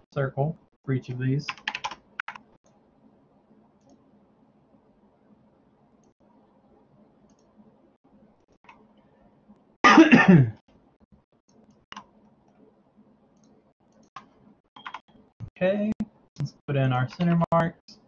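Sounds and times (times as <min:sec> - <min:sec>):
computer mouse clicks: 0:01.5 - 0:02.8, 0:03.8 - 0:04.0, 0:07.3 - 0:07.6, 0:08.6 - 0:09.0, 0:11.5 - 0:12.6, 0:13.4 - 0:15.2
person coughing: 0:09.9 - 0:10.6.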